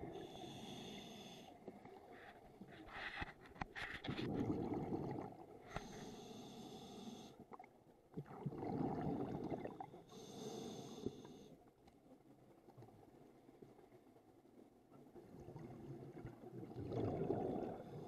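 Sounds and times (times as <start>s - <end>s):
regulator hissing inhale: 0.1s - 1.5s, 5.7s - 7.4s, 10.1s - 11.6s
exhaled bubbles rushing: 4.1s - 5.6s, 8.2s - 10.0s, 15.4s - 18.0s.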